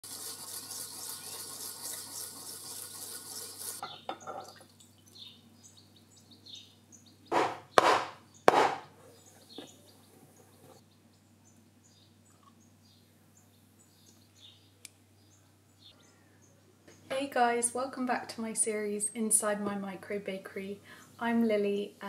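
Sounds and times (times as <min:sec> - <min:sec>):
bamboo whisk scraping ceramic bowl: 0:00.0 - 0:03.8
liquid pouring into cup: 0:00.0 - 0:05.1
metal jug knocking on counter: 0:07.3 - 0:08.8.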